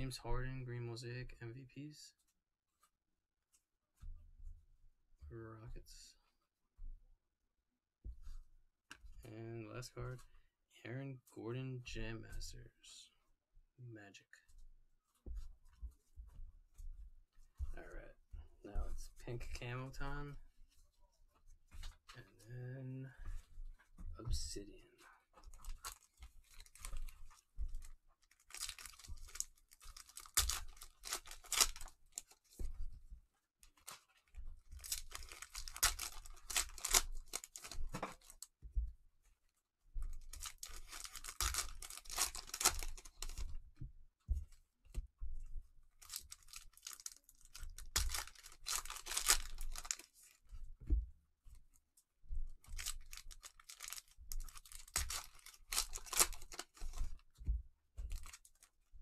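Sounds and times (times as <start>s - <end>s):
wrappers tearing and crinkling: 25.5s - 32.6s, 34.8s - 38.5s, 40.2s - 43.5s, 46.0s - 50.3s, 52.6s - 57.3s, 58.1s - 58.7s.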